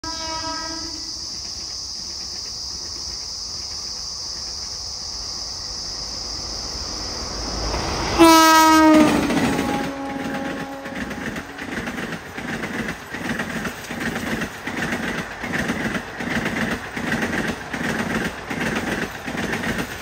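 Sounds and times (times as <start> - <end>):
train horn blast: 0.0 - 1.1, 8.2 - 11.6
train rumble: 0.0 - 20.0.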